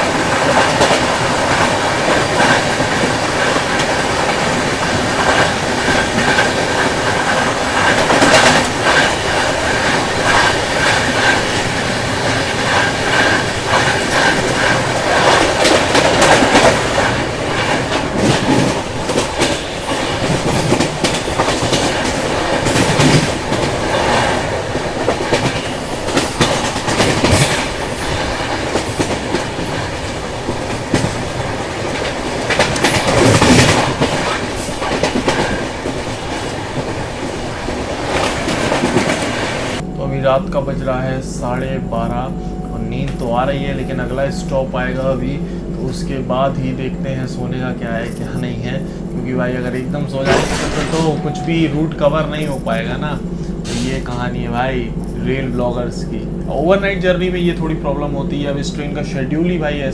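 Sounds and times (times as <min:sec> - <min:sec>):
train wheels clattering over joints: 0:00.0 - 0:39.8, 0:45.1 - 0:51.3
train rushing noise: 0:00.0 - 0:59.9
train rushing past alongside: 0:00.0 - 0:59.9.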